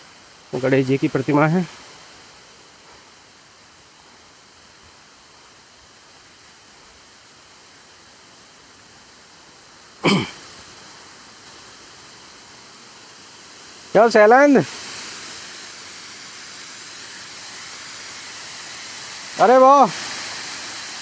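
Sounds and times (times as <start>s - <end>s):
waterfall rushing: 9.1s - 21.0s.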